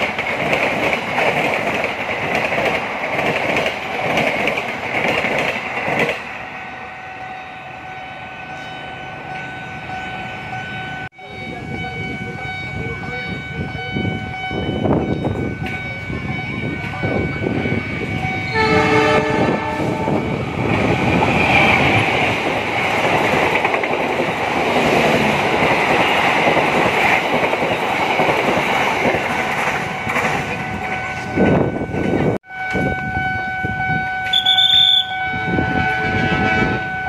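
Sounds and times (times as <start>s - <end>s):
train wheels clattering: 0.0s - 6.3s, 18.6s - 32.2s
locomotive horn blast: 6.6s - 20.4s, 31.0s - 37.0s
short high-pitched horn toot: 18.5s - 20.2s, 32.5s - 37.0s.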